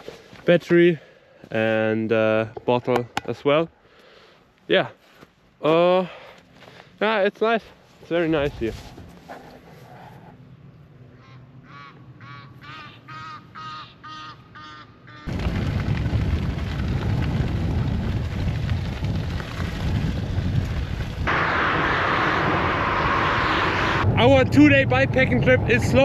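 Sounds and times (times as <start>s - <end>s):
geese honking: 11.2s - 15.3s
trike rolling on dirt track: 15.3s - 26.0s
motorway traffic hiss: 21.3s - 24.0s.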